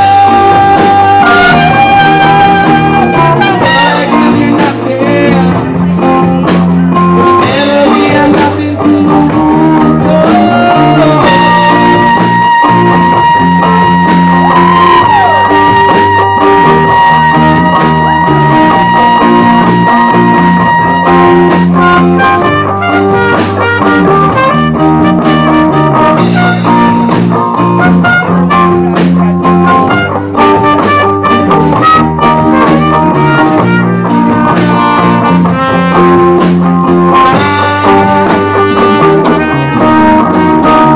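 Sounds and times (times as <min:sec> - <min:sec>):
held high note bending: 0:00.0 - 0:04.8
bass guitar: 0:00.0 - 0:40.9
drum kit: 0:00.0 - 0:40.9
electric guitar: 0:00.0 - 0:40.9.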